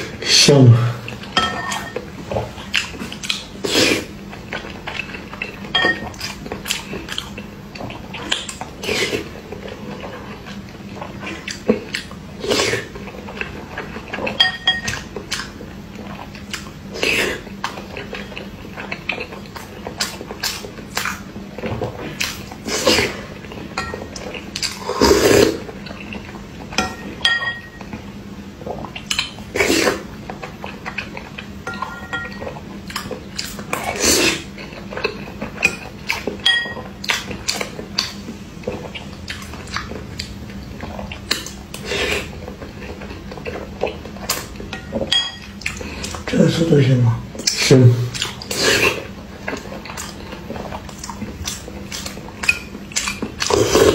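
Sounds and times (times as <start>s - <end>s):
metal spoon clinking ceramic bowl: 26.8s - 27.8s, 36.4s - 36.8s
biting and chewing: 47.4s - 53.9s.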